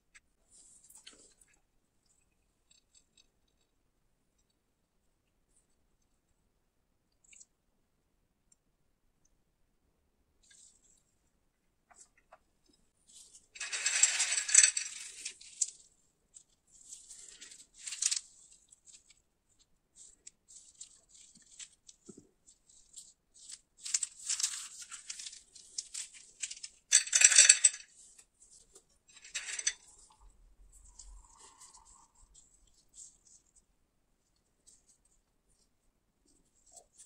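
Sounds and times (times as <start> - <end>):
peanuts rattling on a glass plate: 13.6 - 19.2, 20.0 - 28.2, 29.1 - 30.2.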